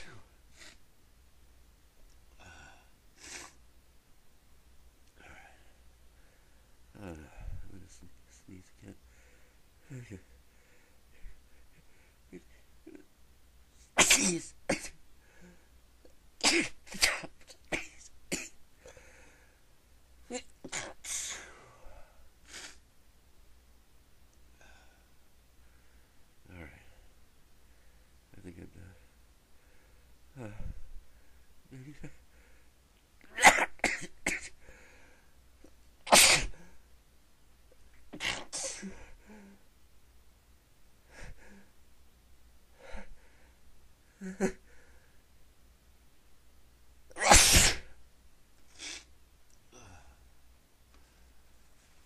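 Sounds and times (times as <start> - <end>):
person sneezing: 0.0 - 0.8, 2.4 - 3.6, 13.8 - 15.0, 16.4 - 18.6, 20.3 - 21.7, 22.5 - 22.8, 33.3 - 34.6, 36.1 - 36.8, 38.2 - 39.4, 47.1 - 48.0, 48.7 - 49.1.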